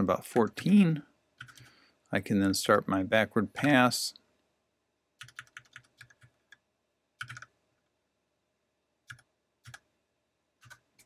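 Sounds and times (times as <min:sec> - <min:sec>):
quiet computer keyboard keystrokes: 0:01.4 - 0:01.7, 0:03.6 - 0:03.8, 0:05.2 - 0:06.6, 0:07.2 - 0:07.6, 0:09.1 - 0:09.9, 0:10.6 - 0:11.0.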